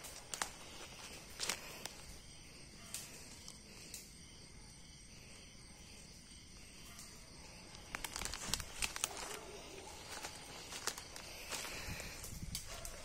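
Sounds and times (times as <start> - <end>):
dry leaves crackling: 0.0 - 2.2, 7.5 - 13.0
crickets chirping: 0.0 - 13.0.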